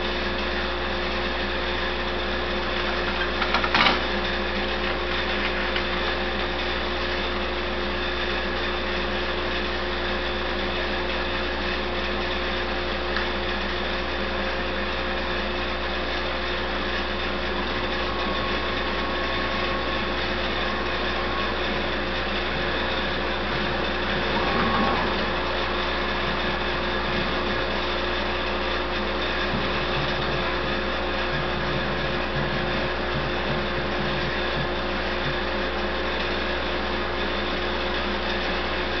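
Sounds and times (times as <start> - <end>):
router spindle whine: 0.0 - 39.0
vacuum rushing noise: 16.7 - 36.5.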